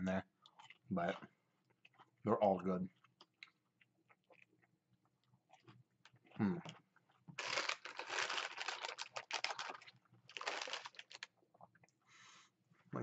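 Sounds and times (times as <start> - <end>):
snack bag crinkling and rustling: 7.3 - 11.4.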